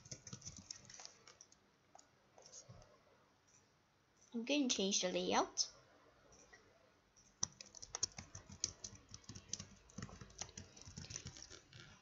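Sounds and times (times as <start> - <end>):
keyboard typing clicks: 0.0 - 2.1, 7.4 - 11.6.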